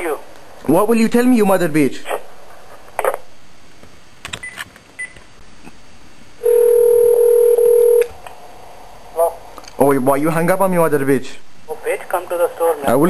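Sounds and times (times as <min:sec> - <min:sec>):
telephone ringback tone: 0:06.4 - 0:08.0.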